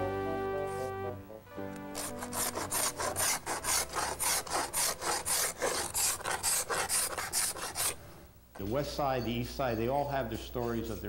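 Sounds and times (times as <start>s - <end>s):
hand tool rasping on wood: 2.0s - 8.0s.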